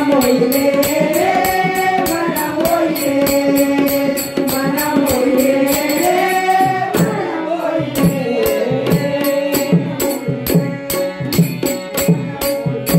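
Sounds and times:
women singing into microphones: 0.0s - 12.5s
hand drum: 0.0s - 12.9s
jingling percussion: 0.0s - 12.9s.

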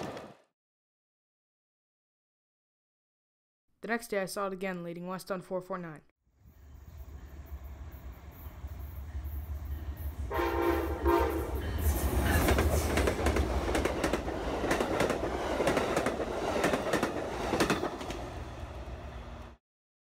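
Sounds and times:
train horn blast: 9.8s - 11.8s.

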